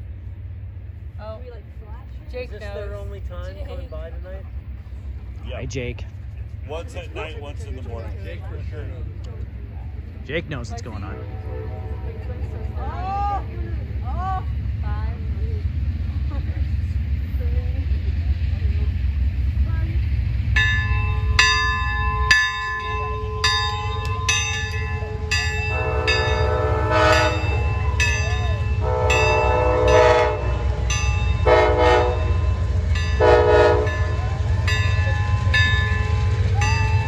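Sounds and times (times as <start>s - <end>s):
low rumble of train: 0.0s - 37.0s
locomotive horn blasts: 10.8s - 12.9s, 21.1s - 37.0s
large bell rung by hand: 20.6s - 29.6s, 30.9s - 31.5s, 33.9s - 37.0s.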